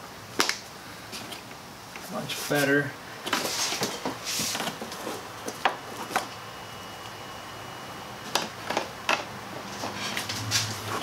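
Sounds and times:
rustling and scraping of parts: 1.0s - 6.4s, 8.3s - 11.0s.

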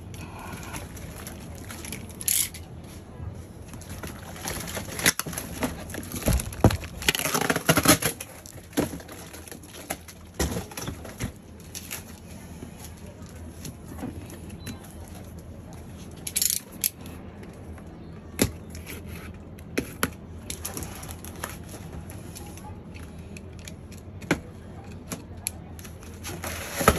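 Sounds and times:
cardboard rustling and scraping: 2.8s - 14.4s, 26.1s - 26.9s.

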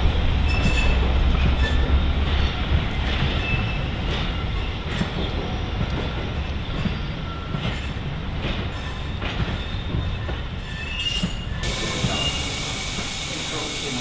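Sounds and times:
railway coaches rumbling: 0.0s - 14.0s
high-pitched wheel squeals: 10.6s - 13.8s
steady hiss: 11.6s - 14.0s.

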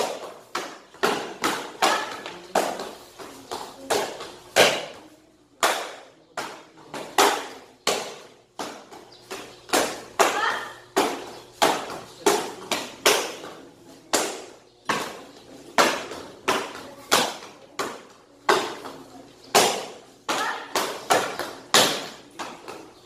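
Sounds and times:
kicks slapping target paddles: 0.0s - 5.0s.

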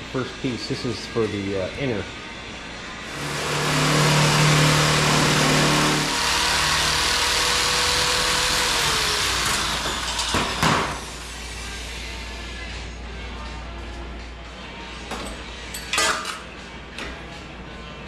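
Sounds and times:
electric shear cutting sheet metal: 3.1s - 11.3s.

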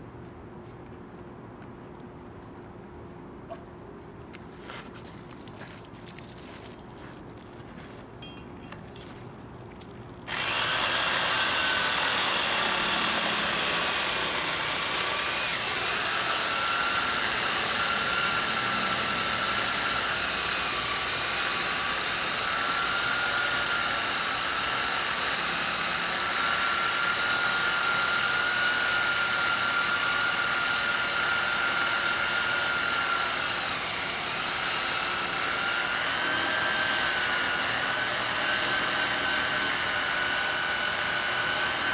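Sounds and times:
core drill whining into stone: 10.3s - 41.9s.

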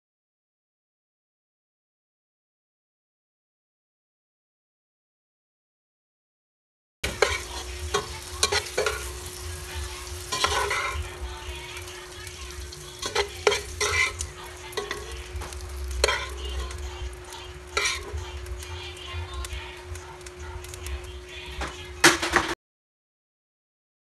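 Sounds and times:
meat sizzling in hot oil: 7.0s - 22.0s
steady hum: 7.0s - 22.2s
clicks and scrapes against pan: 13.0s - 16.4s, 17.8s - 18.2s.

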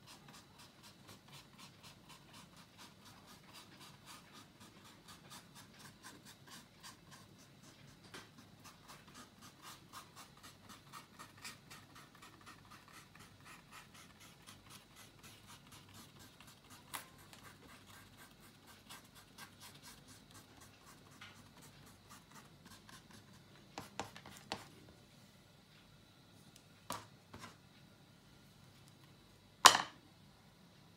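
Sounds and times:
paintbrush scratching on board: 0.0s - 24.7s.

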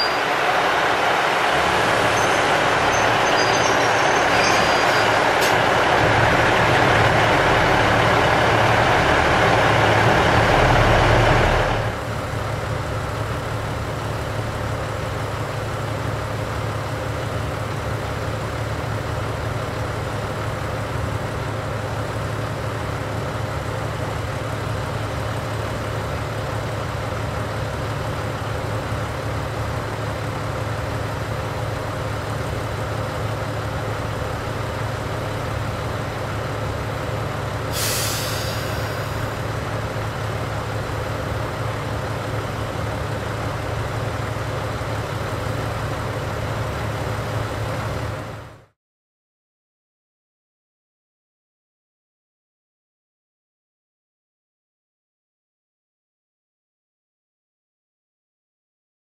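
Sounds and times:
diesel railcar engine idling: 0.0s - 48.7s
compressed air hissing: 37.7s - 39.0s.

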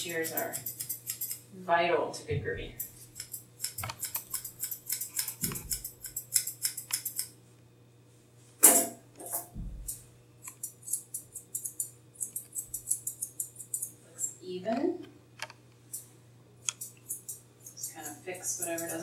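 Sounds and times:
shears snipping hair: 0.0s - 1.4s, 2.8s - 7.4s, 9.8s - 14.4s, 16.6s - 19.0s
soft low thump: 9.5s - 9.9s.

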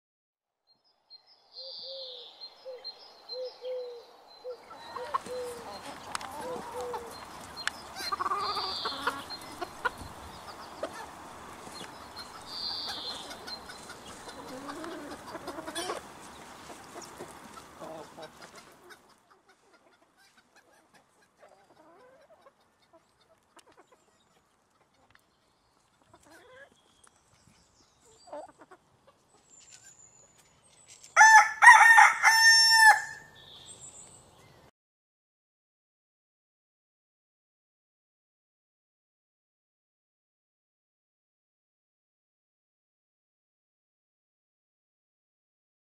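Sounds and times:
rooster crowing: 31.2s - 33.4s.

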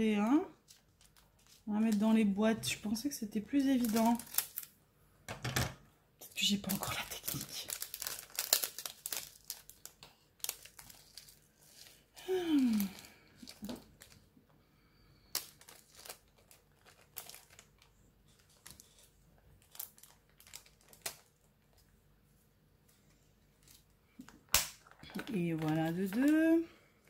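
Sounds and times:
plastic bag crinkling: 0.6s - 2.8s, 3.4s - 4.8s, 6.3s - 14.3s, 15.3s - 21.9s, 24.8s - 26.7s.

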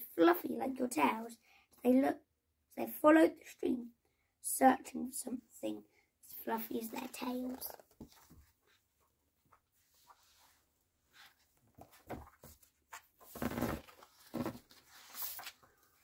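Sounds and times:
book pages rustling: 7.0s - 16.0s.

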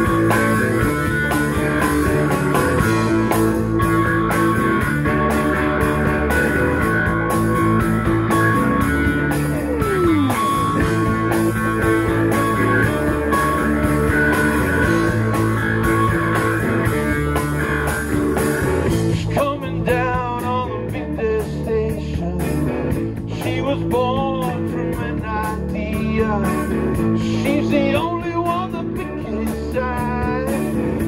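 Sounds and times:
live rock band playing: 0.0s - 31.0s
person singing: 23.3s - 31.0s.

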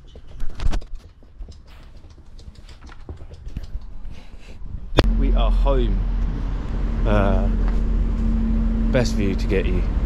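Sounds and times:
puppy scrabbling clicks and knocks: 0.0s - 4.2s.

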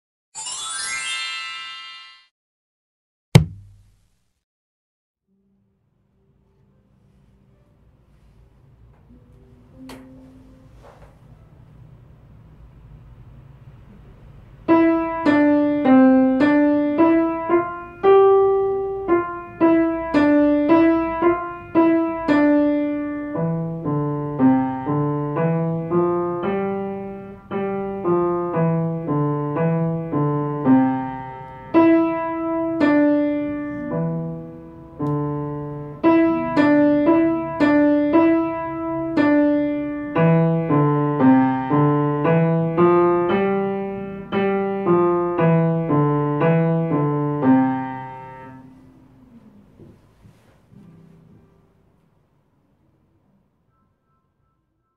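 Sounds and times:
piano melody: 0.4s - 2.0s, 9.1s - 10.8s, 14.7s - 49.4s
low piano notes: 14.7s - 50.0s.

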